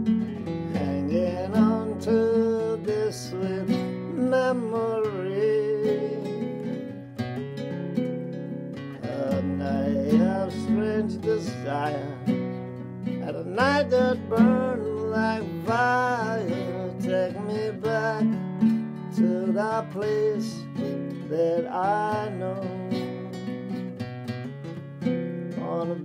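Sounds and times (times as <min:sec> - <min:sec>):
acoustic guitar strumming: 0:00.0 - 0:26.0
person humming wordless melody: 0:00.7 - 0:06.6, 0:09.0 - 0:12.3, 0:13.2 - 0:18.4, 0:19.2 - 0:23.3, 0:25.3 - 0:26.0.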